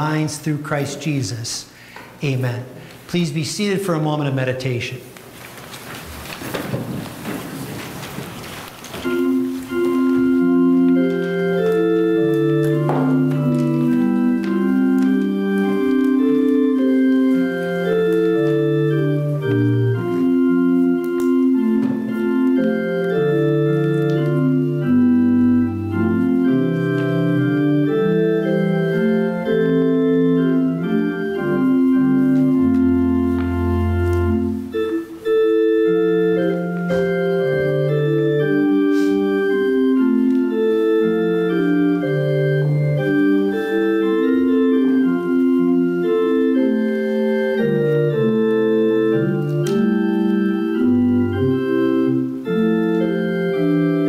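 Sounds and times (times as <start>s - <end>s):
organ playing held chords: 7.0s - 54.0s.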